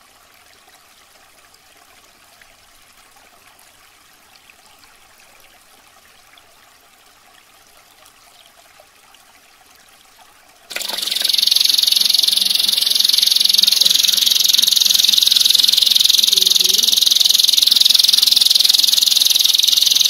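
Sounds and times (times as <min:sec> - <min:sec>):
faint trickle of water: 0:00.0 - 0:20.0
canary rolling trill: 0:10.7 - 0:20.0.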